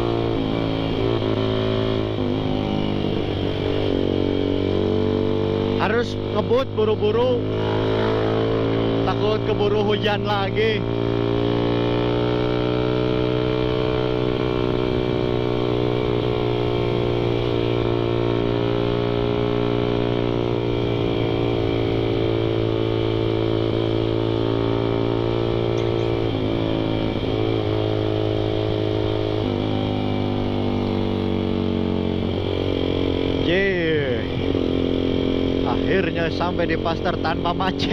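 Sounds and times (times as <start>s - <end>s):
motorcycle engine at high revs: 0.0s - 37.9s.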